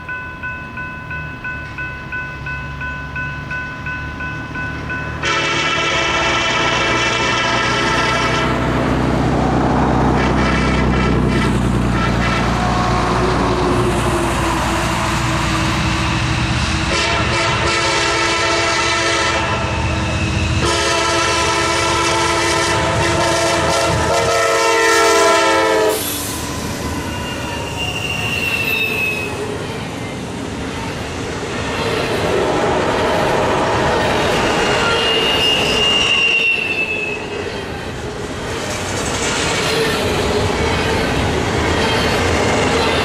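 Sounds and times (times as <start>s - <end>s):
train horn blasts: 5.2s - 8.8s, 10.1s - 13.4s, 16.8s - 26.2s, 34.4s - 37.4s
wheel squeal: 26.0s - 29.5s, 34.3s - 37.6s.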